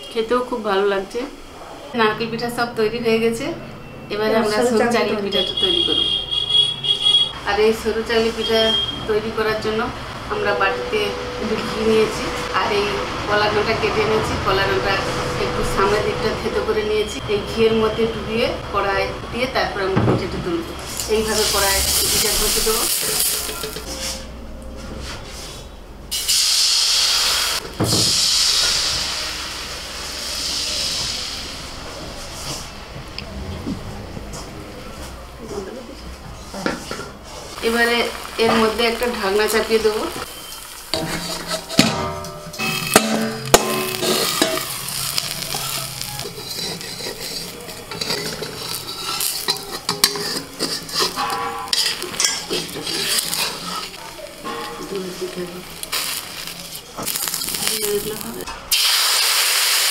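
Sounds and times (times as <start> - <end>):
batter sizzling in a wok: 20.8 - 24.1, 26.1 - 32.5, 37.5 - 41.9, 42.5 - 59.9
metal spatula scraping a pan: 20.9 - 24.3, 38.4 - 57.4
steel bowl clinking on pan: 22.9 - 23.9, 40.9 - 57.3.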